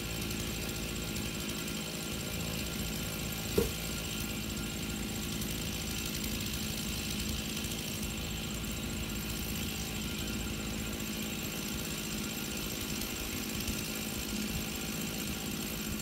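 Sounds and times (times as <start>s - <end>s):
engine running steadily: 0.0s - 16.0s.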